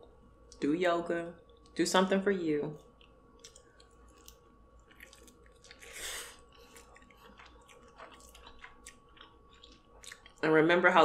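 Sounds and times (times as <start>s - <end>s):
wet chewing and mouth clicks: 2.8s - 10.4s.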